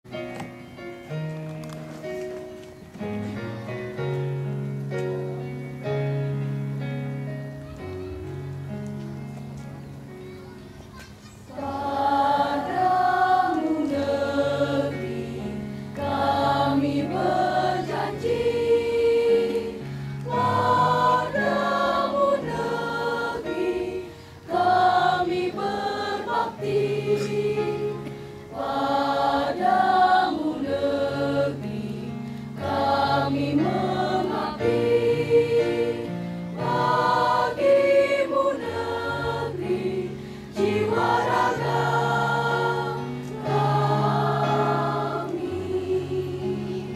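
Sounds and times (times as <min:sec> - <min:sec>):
held keyboard chords: 0:00.1 - 0:46.9
choir singing: 0:11.5 - 0:46.9.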